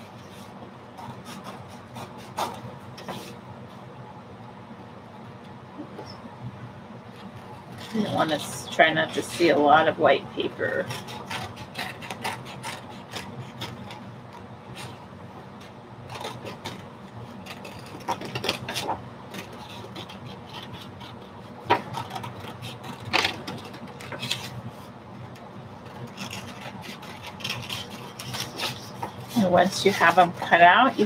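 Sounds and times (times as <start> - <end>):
scissors snipping paper: 10.6 - 15.0, 16.1 - 24.6, 25.9 - 31.0
paper rustling: 21.7 - 24.9, 26.0 - 31.0.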